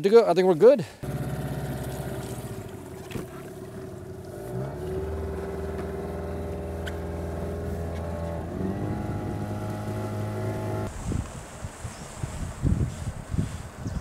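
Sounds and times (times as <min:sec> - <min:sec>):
outboard motor running: 0:01.0 - 0:10.9.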